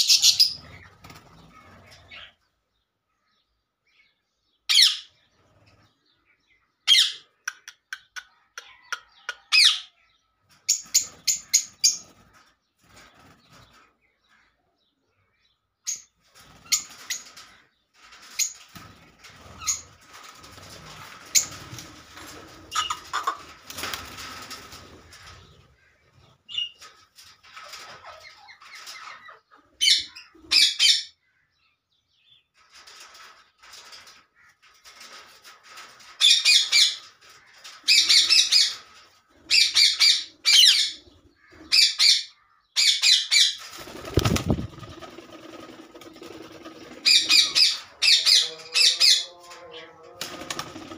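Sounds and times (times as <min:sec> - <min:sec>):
parakeet wings flapping: 0:16.3 - 0:25.5, 0:43.6 - 0:47.8, 0:50.2 - 0:50.9.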